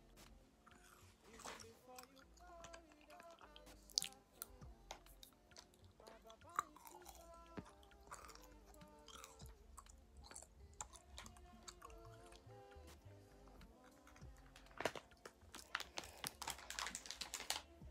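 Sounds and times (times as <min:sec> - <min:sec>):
chewing candy: 0:00.2 - 0:17.9.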